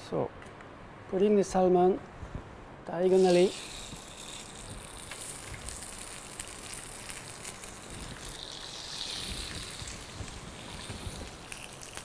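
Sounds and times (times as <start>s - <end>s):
fish sizzling on grill pan: 3.1s - 12.0s
crackles and pops: 3.4s - 12.0s.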